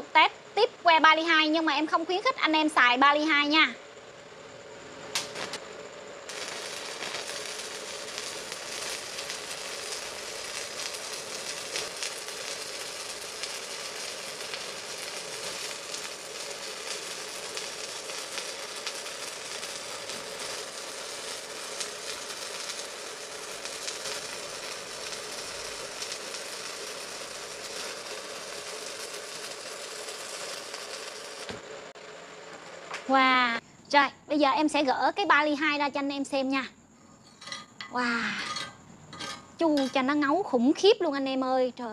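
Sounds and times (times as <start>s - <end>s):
faint steady buzz: 0.0s - 41.9s
welding arc crackling: 5.1s - 33.6s.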